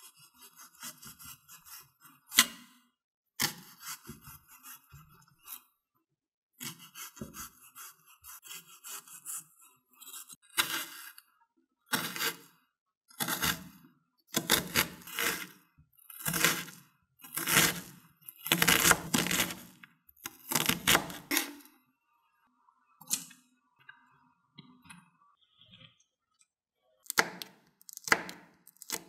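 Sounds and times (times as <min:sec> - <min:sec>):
knife chopping on wooden board: 0:17.4 - 0:19.6, 0:27.1 - 0:29.0.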